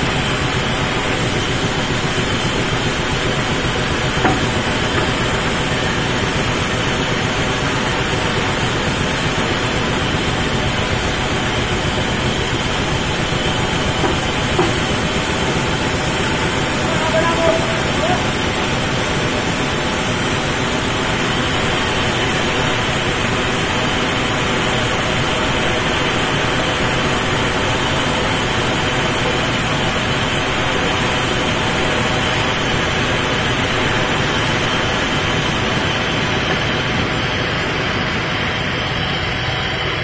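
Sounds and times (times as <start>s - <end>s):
band saw cutting wood: 0.5s - 29.6s.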